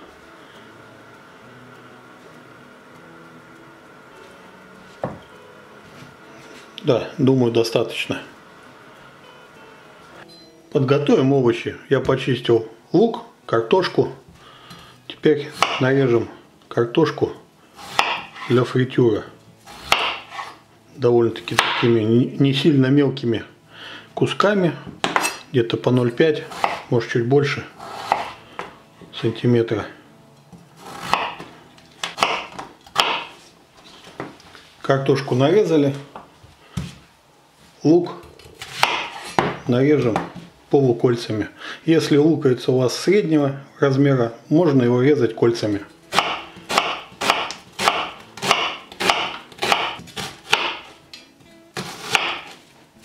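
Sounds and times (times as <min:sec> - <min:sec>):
knife slicing raw potato: 0:17.8 - 0:18.6, 0:19.7 - 0:20.6, 0:26.4 - 0:27.0, 0:27.8 - 0:28.4, 0:30.8 - 0:33.4, 0:38.4 - 0:40.2, 0:46.1 - 0:51.0, 0:51.8 - 0:52.6.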